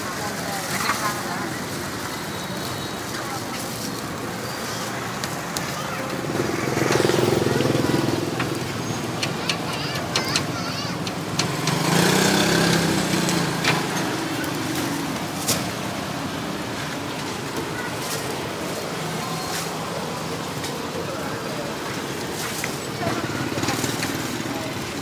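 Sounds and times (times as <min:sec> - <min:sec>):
faint voices: 0:00.0 - 0:25.0
street noise: 0:00.0 - 0:25.0
motor engine running: 0:06.1 - 0:15.4.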